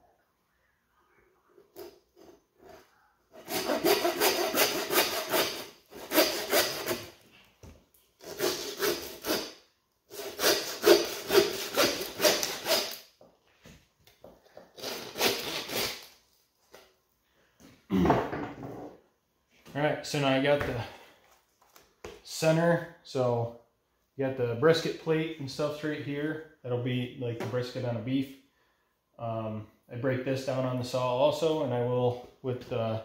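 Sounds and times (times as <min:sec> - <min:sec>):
handsaw cutting through bone: 0:03.3 - 0:07.1, 0:08.2 - 0:13.0, 0:14.8 - 0:16.1.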